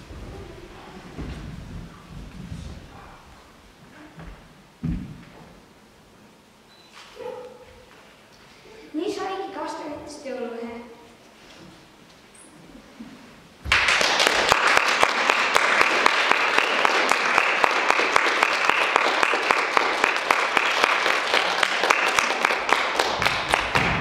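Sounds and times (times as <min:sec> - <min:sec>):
audience applauding: 0:13.7 - 0:24.0.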